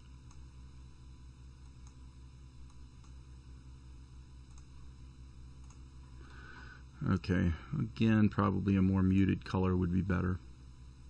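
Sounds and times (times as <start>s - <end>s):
low electrical hum: 0.0s - 11.0s
computer mouse clicks: 4.5s - 4.7s, 5.6s - 5.8s.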